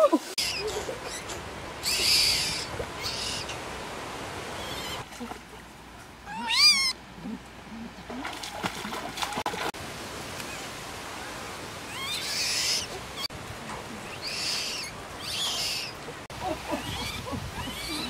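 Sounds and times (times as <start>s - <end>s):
baby monkey squealing: 0.4s - 3.5s, 6.3s - 7.0s, 11.9s - 13.3s, 14.1s - 15.9s, 16.8s - 18.0s.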